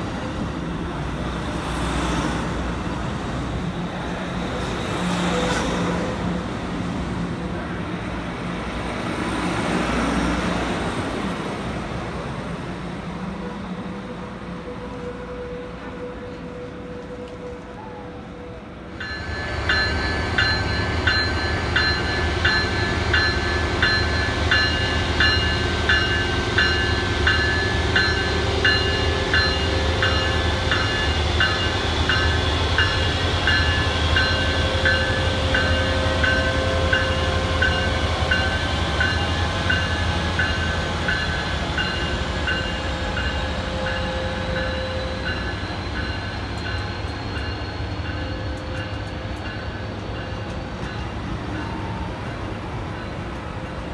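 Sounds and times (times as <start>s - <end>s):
train rumbling past: 0.0s - 53.9s
train bell ringing: 18.9s - 52.2s.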